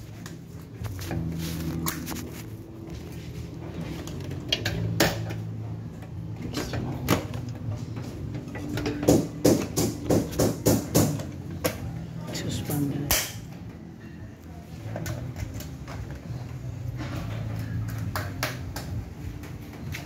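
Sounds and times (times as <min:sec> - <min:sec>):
clicks and knocks of hard parts: 0:04.0 - 0:11.9.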